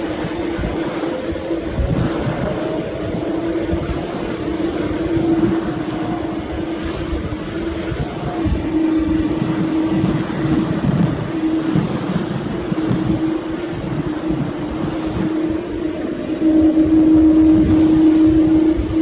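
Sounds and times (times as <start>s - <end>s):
jet engines humming: 0.0s - 19.0s.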